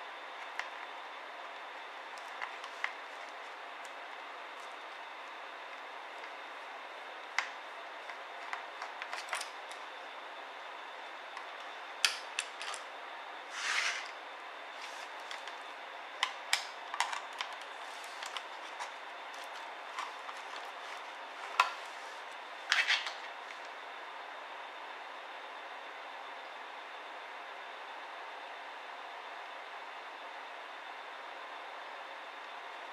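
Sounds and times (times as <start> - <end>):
brief scrape: 13.5 - 14.2.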